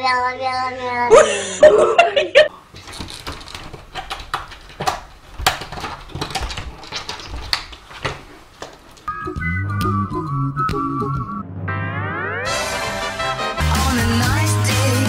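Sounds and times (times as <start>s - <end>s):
pet door flap clattering: 2.8s - 9.1s
music: 9.1s - 15.0s.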